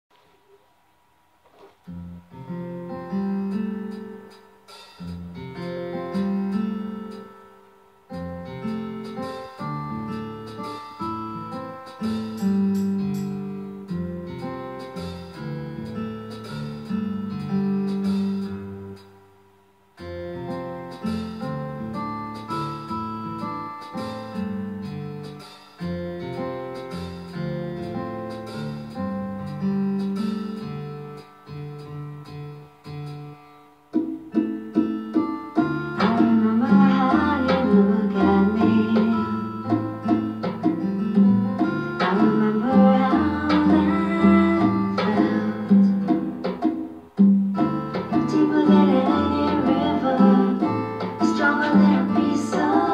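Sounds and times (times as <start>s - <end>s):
picked acoustic guitar: 20.0s - 52.9s.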